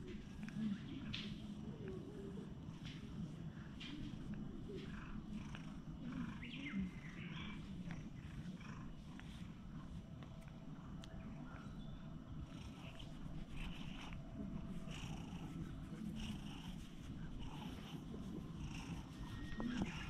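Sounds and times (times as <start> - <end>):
cat purring: 0.0 - 20.0.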